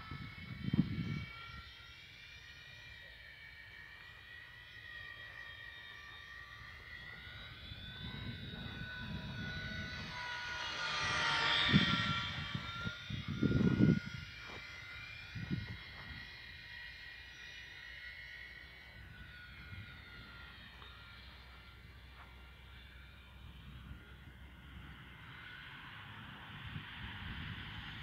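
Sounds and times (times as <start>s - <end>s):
wind buffeting microphone: 0.0s - 1.6s, 7.5s - 16.3s, 26.0s - 28.0s
model airplane propellers whining: 0.0s - 28.0s.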